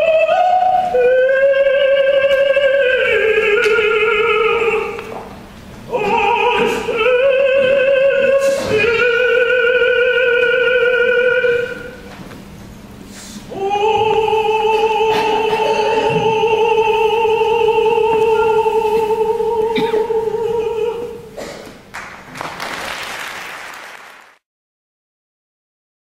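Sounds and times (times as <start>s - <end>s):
person singing long note with vibrato: 0.0s - 5.2s, 5.9s - 12.1s, 13.5s - 21.4s
audience applause: 21.9s - 24.4s.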